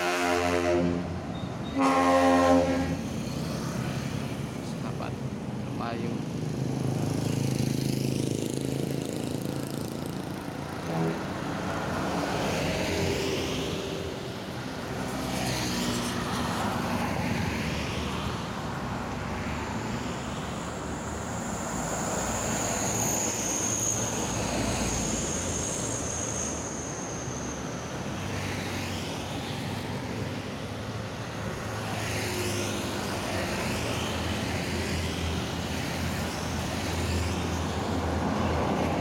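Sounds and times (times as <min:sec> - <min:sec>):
road traffic passing: 0:00.0 - 0:39.0
high-pitched whine: 0:19.8 - 0:29.0.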